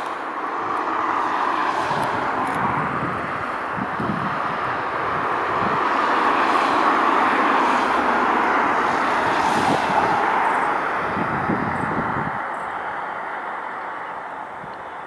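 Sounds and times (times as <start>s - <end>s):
jet airliner roar: 0.0s - 15.0s.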